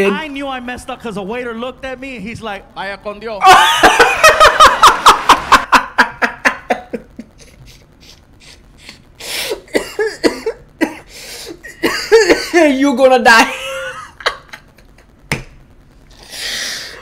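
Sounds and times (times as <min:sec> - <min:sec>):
man laughing hard: 0:03.4 - 0:07.8, 0:11.6 - 0:12.5
sharp breath: 0:16.1 - 0:17.0.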